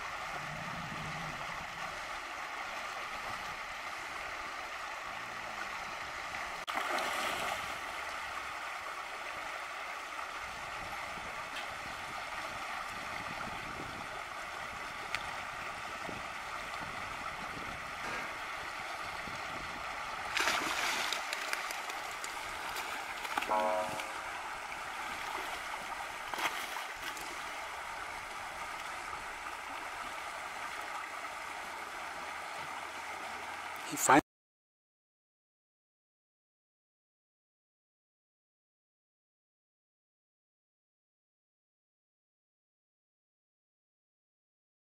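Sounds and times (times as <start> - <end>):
water rushing from culvert: 0.0 - 34.2.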